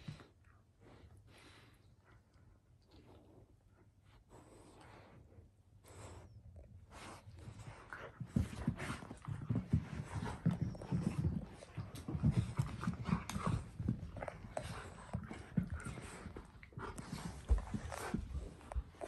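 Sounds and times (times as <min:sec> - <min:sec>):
dogs scuffling on a rug: 0:06.9 - 0:19.0.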